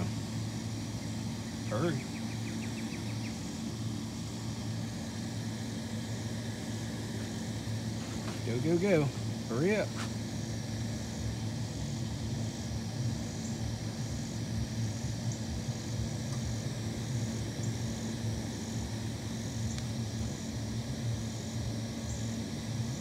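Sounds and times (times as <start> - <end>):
faint high pulsing buzz: 0.0 - 23.0
vehicle engine idling: 0.0 - 23.0.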